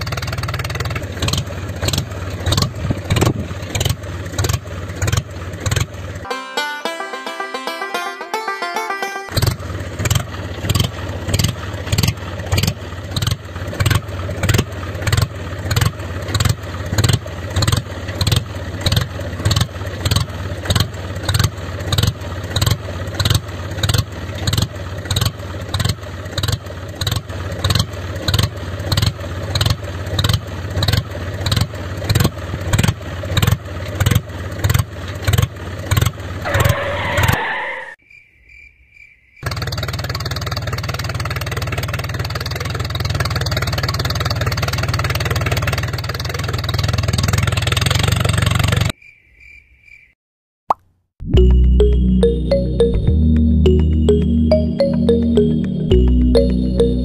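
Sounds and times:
tractor engine running: 0:00.0 - 0:06.2, 0:09.3 - 0:36.6, 0:39.5 - 0:48.9.

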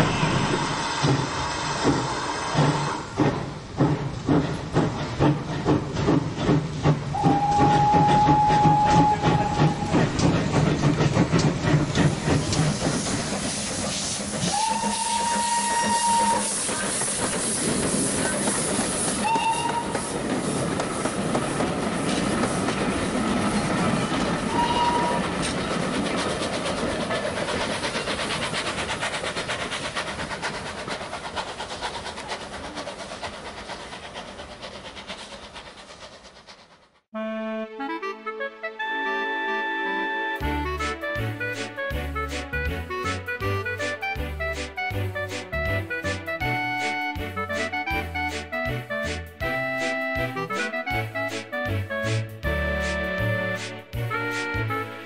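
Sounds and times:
steam locomotive clatter: 0:00.0 - 0:37.1, 0:40.4 - 0:55.0
train whistle blasts: 0:07.2 - 0:09.9, 0:14.4 - 0:16.9, 0:19.2 - 0:20.0, 0:24.5 - 0:25.3.

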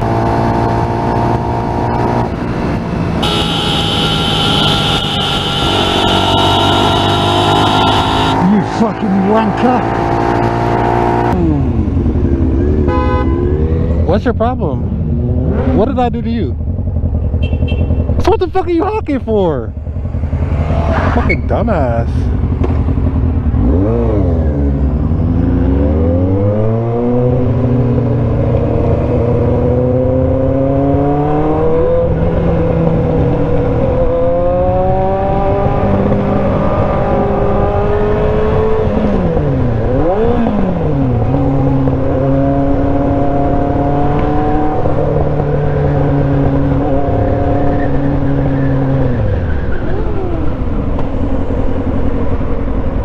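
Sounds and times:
motorcycle engine accelerating: 0:00.0 - 0:53.0.

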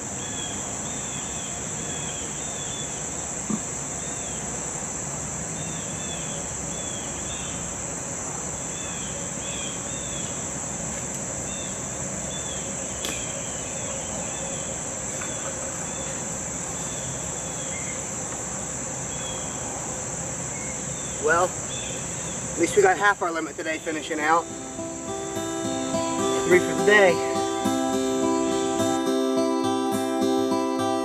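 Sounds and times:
crickets and insects chorus: 0:00.0 - 0:31.0.

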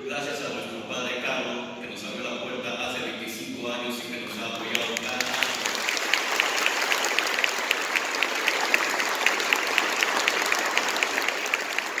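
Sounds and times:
crowd applauding: 0:04.2 - 0:12.0.

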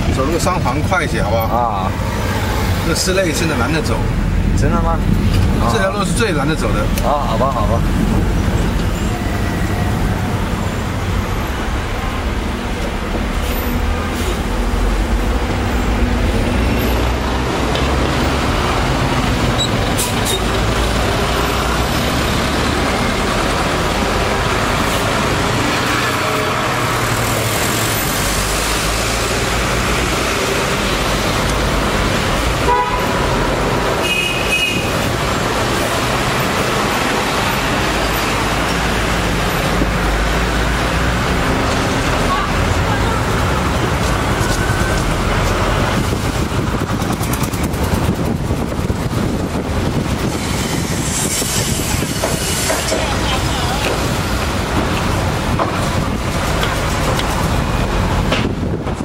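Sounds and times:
traffic rumble: 0:00.0 - 0:59.0
car horn toots: 0:32.6 - 0:33.2, 0:34.0 - 0:35.0.

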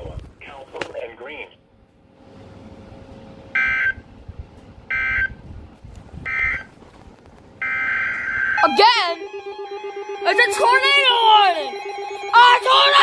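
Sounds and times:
buzzy digital data tones: 0:07.6 - 0:09.1.

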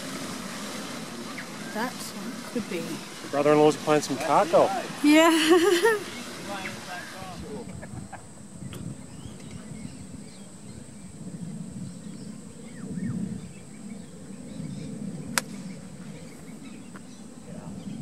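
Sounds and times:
birds chirping: 0:00.7 - 0:18.0.

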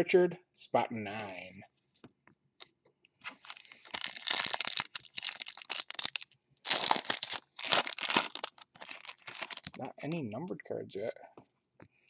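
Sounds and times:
foil wrapper tearing and crinkling: 0:03.4 - 0:10.1.

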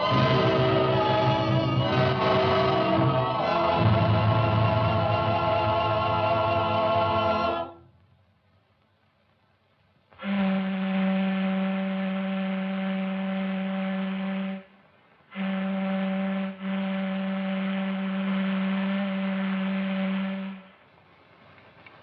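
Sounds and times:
ship's whistle blasts: 0:00.0 - 0:05.1, 0:10.2 - 0:14.7, 0:15.3 - 0:20.8.

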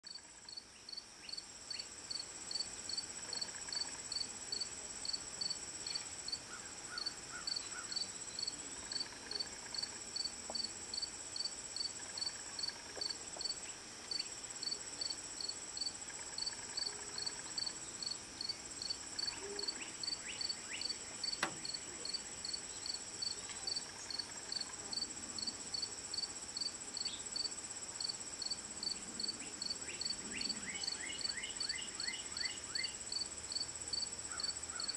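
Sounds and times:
crickets chirping: 0:00.1 - 0:34.9
insects trilling: 0:00.1 - 0:34.9.

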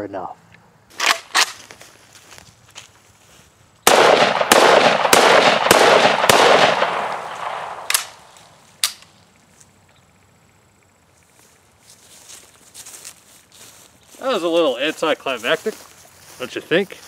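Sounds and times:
rapid rifle shots: 0:03.9 - 0:08.3
faint sharp cracks: 0:04.0 - 0:09.2.

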